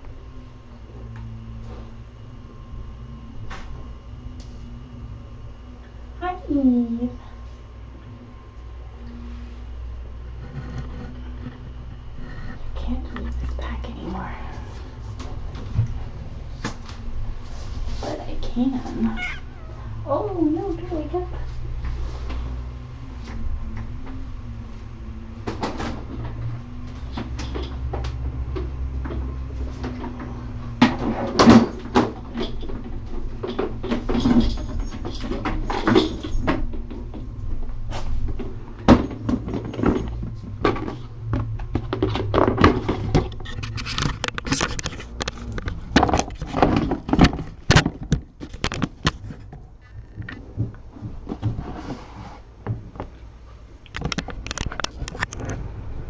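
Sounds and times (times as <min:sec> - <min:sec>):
steady low hum: 0:00.0 - 0:56.0
clicks knocks and rustles: 0:37.9 - 0:51.9, 0:53.9 - 0:55.7.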